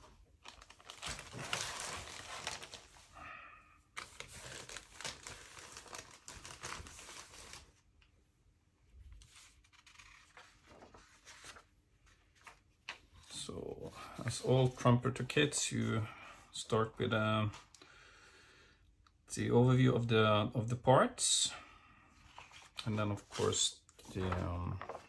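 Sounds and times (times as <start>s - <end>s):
paper rustling: 0.0s - 3.1s, 4.0s - 7.9s, 9.1s - 13.5s, 22.2s - 25.0s
plastic bags crinkling: 0.4s - 3.0s.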